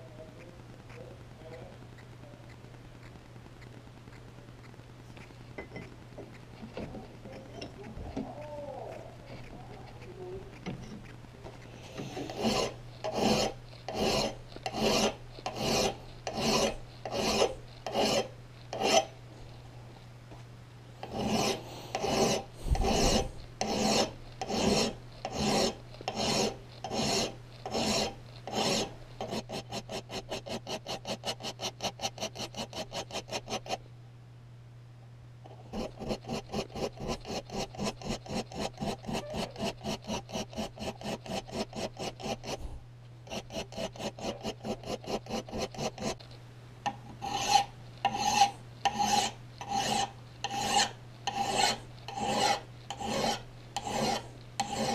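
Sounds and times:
steady low hum: 0:00.0 - 0:54.9
file scraping steel: 0:11.6 - 0:19.2, 0:21.0 - 0:33.8, 0:35.5 - 0:42.7, 0:43.3 - 0:46.2, 0:46.9 - 0:54.9.

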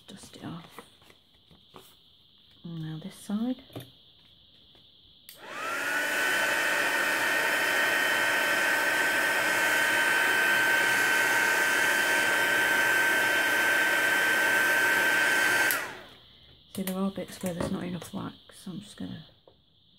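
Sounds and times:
heat gun whining: 0:05.3 - 0:16.2.

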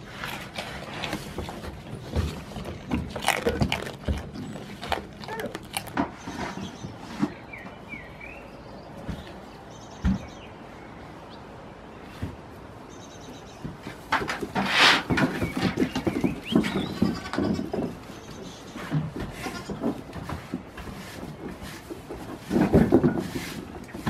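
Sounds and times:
hooves on wooden floor: 0:00.0 - 0:07.8, 0:13.6 - 0:24.0.

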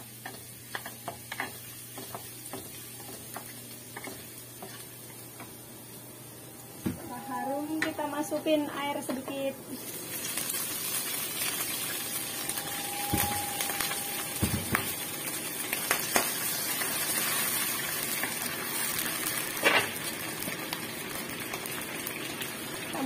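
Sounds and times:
water hissing in hot wok: 0:09.7 - 0:15.7.

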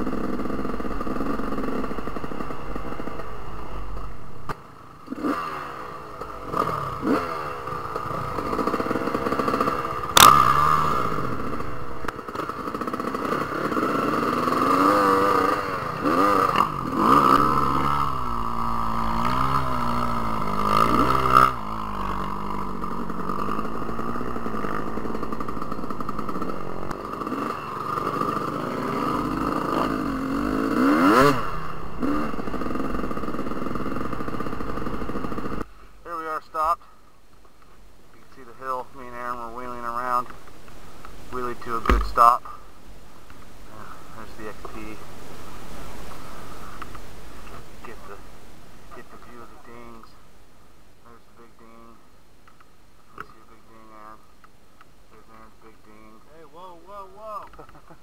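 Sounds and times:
dirt bike engines revving: 0:00.0 - 0:58.0
sharp knocks: 0:41.8 - 0:42.4.

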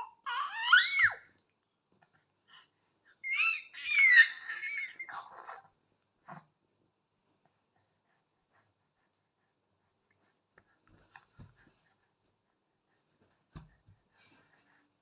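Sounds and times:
soft thumps: 0:13.5 - 0:14.0.

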